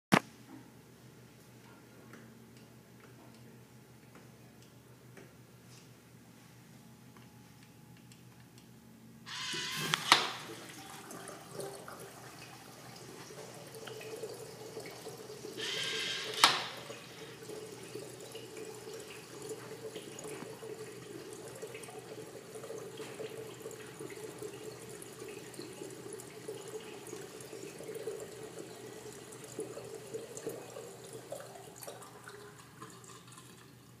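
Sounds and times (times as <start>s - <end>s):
flush valve click: 9.3s - 10.6s, 15.6s - 17.3s
flush valve hissing: 9.3s - 11.0s, 15.5s - 17.5s
water rushing into urinal bowl: 9.3s - 34.0s.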